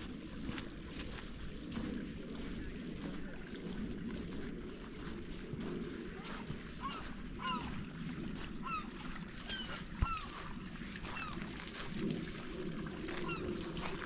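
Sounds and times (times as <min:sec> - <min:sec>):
steady low noise: 0:00.0 - 0:14.0
birds calling: 0:06.2 - 0:11.5, 0:13.1 - 0:14.0.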